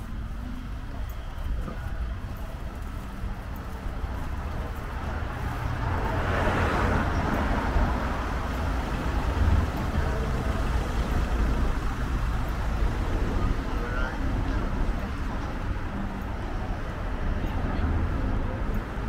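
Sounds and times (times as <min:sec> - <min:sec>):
low traffic rumble: 0:00.0 - 0:19.0
vehicle driving past: 0:05.0 - 0:12.3.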